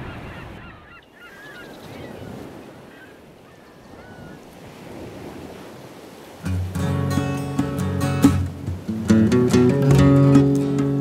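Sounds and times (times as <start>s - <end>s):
short bird calls: 0.0s - 4.4s
ocean surf washing: 0.0s - 11.0s.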